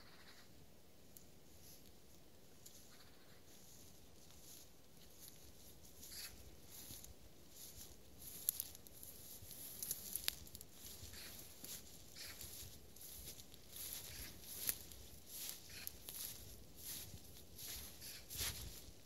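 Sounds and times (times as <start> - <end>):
quiet hiss: 0.0 - 19.0
rustling and crackling: 1.5 - 19.0.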